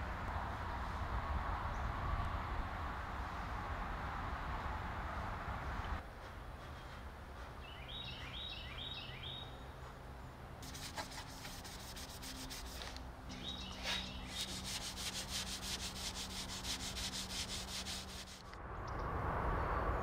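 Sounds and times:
birds chirping: 0:07.6 - 0:10.4, 0:13.2 - 0:15.1
hand sanding wood: 0:10.6 - 0:18.5.

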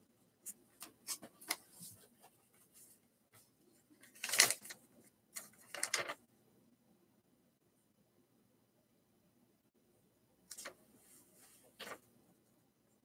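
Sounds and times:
paper rustling: 0:00.4 - 0:03.0, 0:03.9 - 0:06.2, 0:10.5 - 0:12.1.

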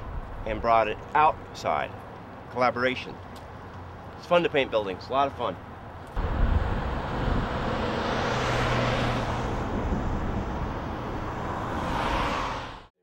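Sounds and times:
passing vehicles rushing: 0:06.1 - 0:12.9
low engine hum: 0:06.2 - 0:12.0.

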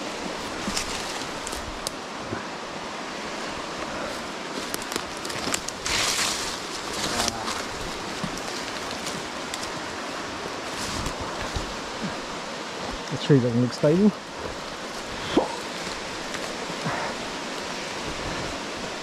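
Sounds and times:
creek rushing: 0:00.0 - 0:19.0
rustle of leaves and branches: 0:00.0 - 0:19.0
footsteps through dry leaves: 0:04.2 - 0:12.0.

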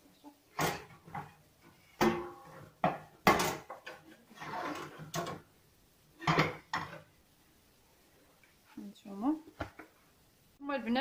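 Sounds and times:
pot and basin knocking: 0:02.0 - 0:03.9, 0:06.2 - 0:07.0.

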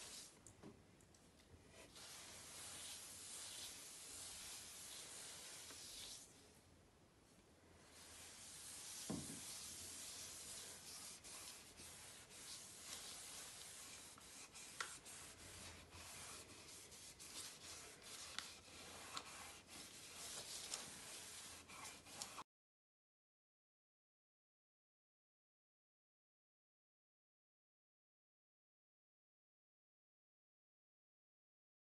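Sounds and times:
cloth rubbing on wood: 0:01.7 - 0:06.3, 0:07.9 - 0:22.4.

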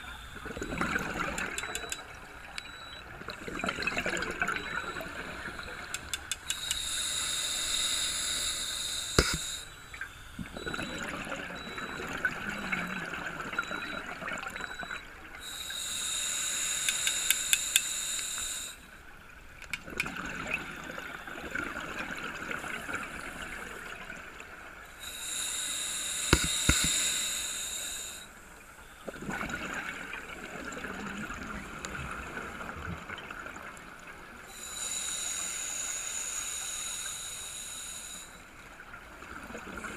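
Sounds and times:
underwater bubbling: 0:00.0 - 0:39.9
sharp clicks: 0:01.2 - 0:02.7, 0:05.8 - 0:07.0, 0:08.4 - 0:10.1, 0:16.7 - 0:18.5, 0:26.2 - 0:27.1
diver breathing through regulator: 0:06.4 - 0:09.8, 0:15.4 - 0:18.9, 0:25.0 - 0:28.4, 0:34.5 - 0:38.5.

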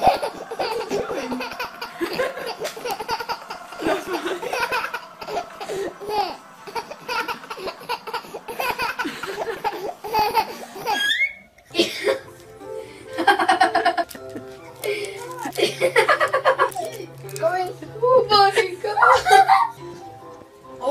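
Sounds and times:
baby laughing: 0:00.0 - 0:12.1.

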